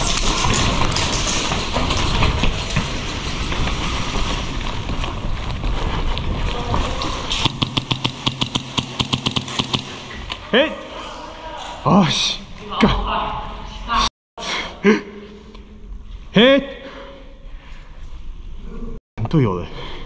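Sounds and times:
rustling movement of running player: 0:00.0 - 0:08.0
fast sharp clicks: 0:07.0 - 0:10.2.

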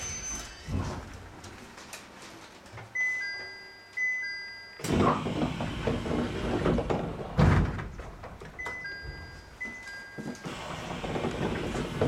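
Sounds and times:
clattering noise: 0:10.2 - 0:12.0.

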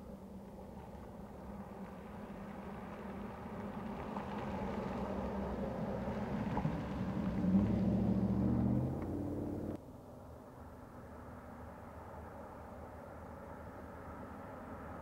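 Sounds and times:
pickup truck driving past: 0:01.7 - 0:09.8.

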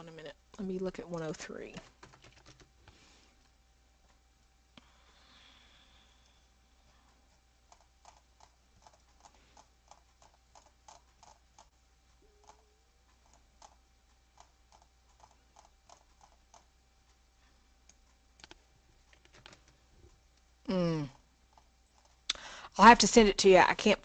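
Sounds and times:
faint steady hum: 0:00.0 - 0:24.0
computer mouse clicking: 0:07.7 - 0:11.7, 0:12.4 - 0:16.7, 0:17.8 - 0:19.8.

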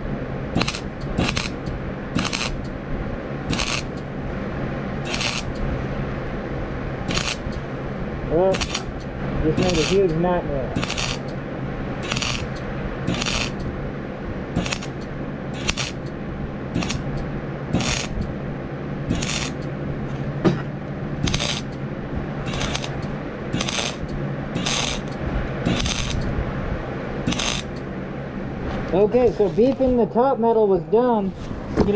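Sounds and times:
welding arc crackling: 0:00.0 - 0:04.3, 0:05.0 - 0:05.7, 0:07.0 - 0:13.8, 0:14.5 - 0:18.4, 0:19.0 - 0:20.3, 0:21.1 - 0:26.3, 0:27.2 - 0:27.9, 0:28.9 - 0:30.0
welder humming: 0:00.0 - 0:31.4.

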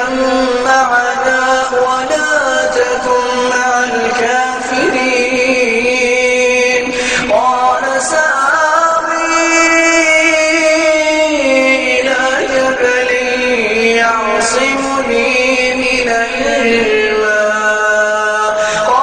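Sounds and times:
person chanting recitation: 0:00.0 - 0:19.0.

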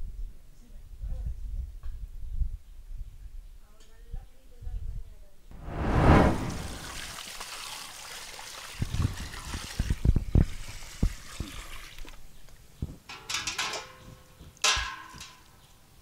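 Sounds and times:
water pouring into a pot: 0:06.8 - 0:12.0
water splashes and drips: 0:06.8 - 0:12.2.

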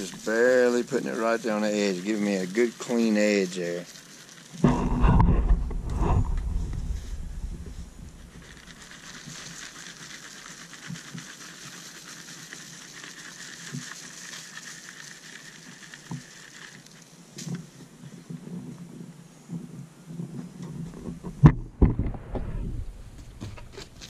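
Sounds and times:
soil conditioner falling on soil: 0:00.0 - 0:18.2.

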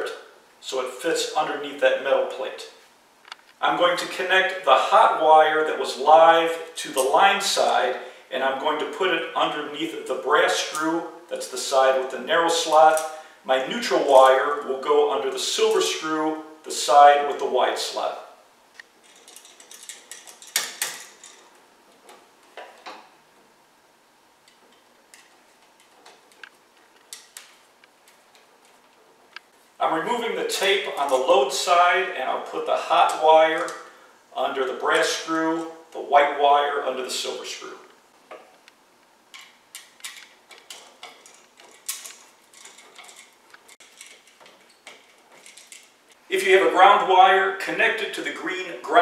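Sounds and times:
small sharp clicks and scrapes: 0:24.4 - 0:29.6, 0:38.3 - 0:46.2
screwdriver turning screws: 0:39.4 - 0:45.9.

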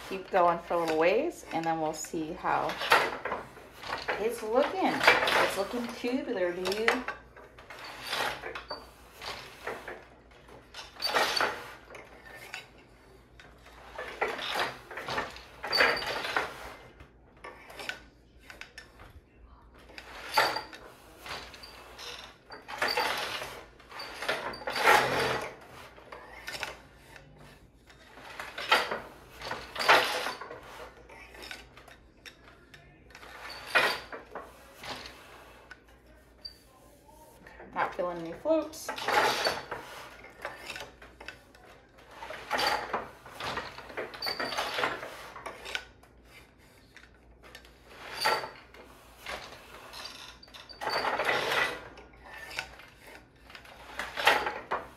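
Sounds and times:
hand loom wooden knocks: 0:00.0 - 0:12.6, 0:19.9 - 0:25.6, 0:28.0 - 0:32.4, 0:37.6 - 0:41.4, 0:42.2 - 0:46.4.

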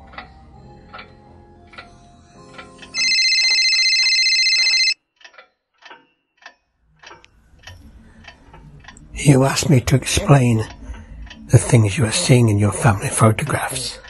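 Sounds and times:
quiet low music: 0:00.0 - 0:04.9, 0:06.3 - 0:14.0
clock ticking: 0:02.5 - 0:14.0
telephone bell ringing: 0:03.0 - 0:05.0.

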